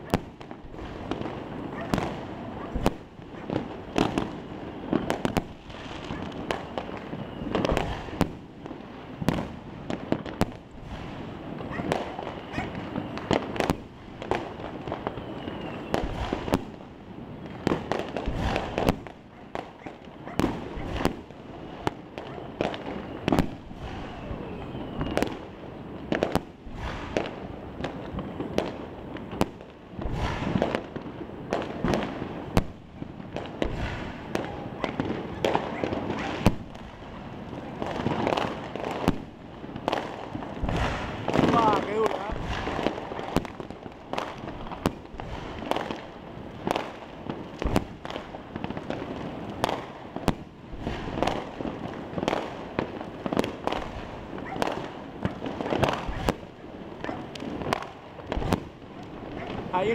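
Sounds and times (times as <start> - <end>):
fireworks bangs and crackles: 0.0 - 59.9
loud sharp firework reports: 0.0 - 59.9.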